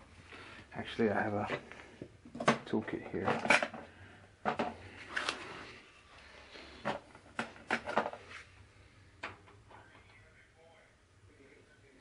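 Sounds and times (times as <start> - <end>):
tools clicking and clattering: 2.4 - 3.8.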